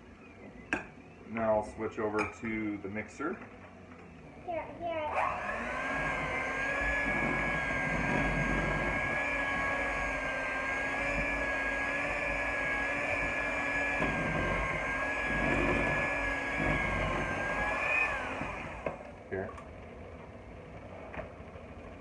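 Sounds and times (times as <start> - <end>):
electric mixer whining: 5.0 - 20.3.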